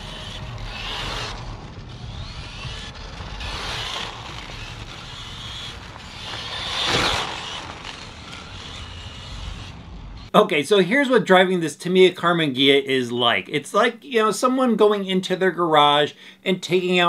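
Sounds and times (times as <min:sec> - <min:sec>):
rc car motor whine: 0:00.0 - 0:10.3
tyre and drivetrain noise: 0:00.0 - 0:10.3.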